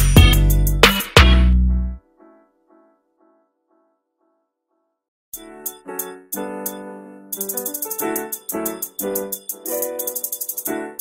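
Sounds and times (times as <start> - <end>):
keyboard note pattern: 5.4 - 11.0.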